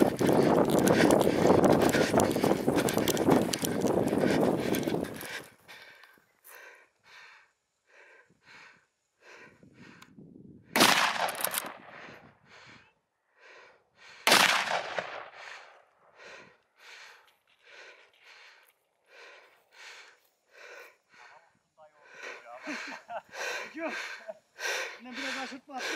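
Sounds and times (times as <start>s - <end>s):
short breathy puffs: 0.0s - 10.2s, 15.3s - 25.9s
shotgun shots with echo: 10.8s - 11.8s, 14.3s - 15.3s
man speaking: 23.7s - 24.2s, 24.9s - 25.9s.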